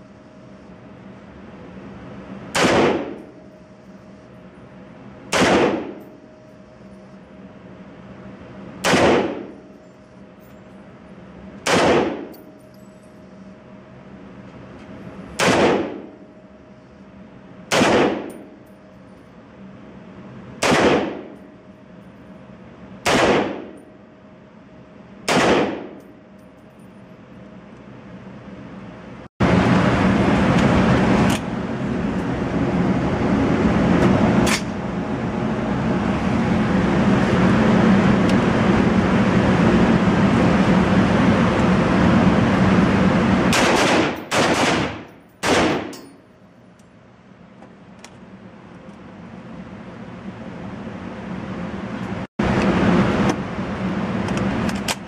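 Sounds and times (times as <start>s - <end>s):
rifle shots echoing indoors: 2.5s - 3.3s, 5.3s - 6.0s, 8.8s - 9.6s, 11.6s - 12.4s, 15.4s - 16.2s, 17.7s - 18.4s, 20.6s - 21.4s, 23.0s - 23.8s, 25.2s - 26.0s, 43.5s - 46.0s
loud steady rushing noise: 29.4s - 45.1s
sharp cracks: 43.5s - 46.0s.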